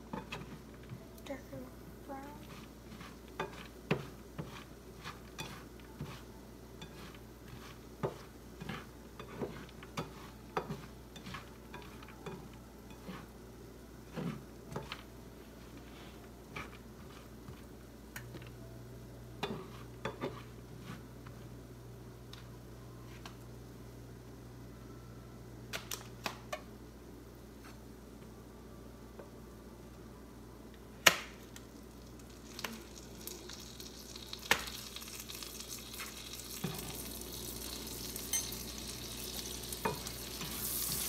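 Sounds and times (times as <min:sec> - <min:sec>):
spatula scraping cereal in pan: 0:02.4 - 0:13.4, 0:14.0 - 0:17.7, 0:19.4 - 0:21.5, 0:38.5 - 0:41.0.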